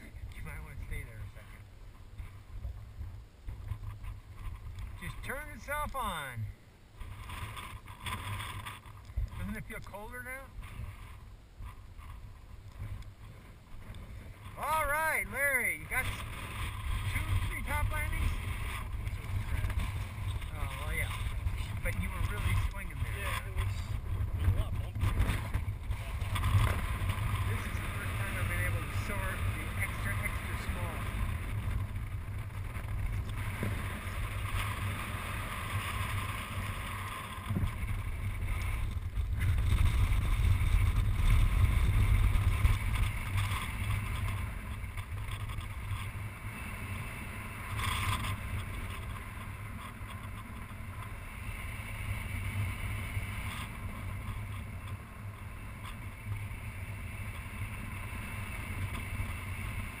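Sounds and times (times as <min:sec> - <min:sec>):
wind buffeting microphone: 0:06.9 - 0:47.0.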